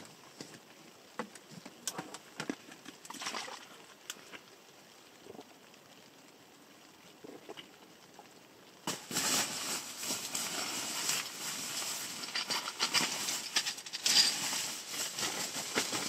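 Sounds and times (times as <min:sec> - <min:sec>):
tent fabric rustling and crackling: 0:08.8 - 0:16.0.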